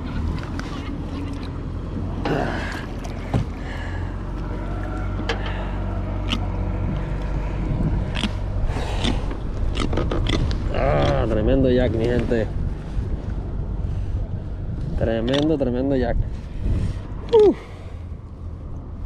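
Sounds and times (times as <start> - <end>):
water splashes: 0.0 - 4.1
water lapping at a kayak: 0.0 - 5.2
wind on microphone: 6.8 - 17.3.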